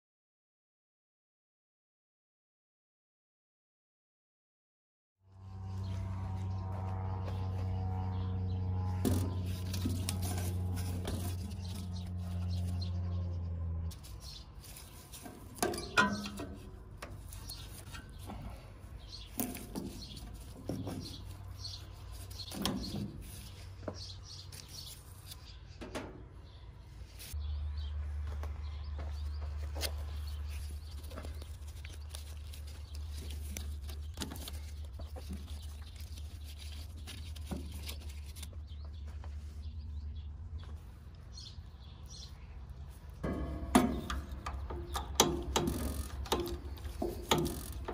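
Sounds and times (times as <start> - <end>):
low steady hum: 5.4 - 13.8
clicks and knocks of hand work: 43.2 - 47.9.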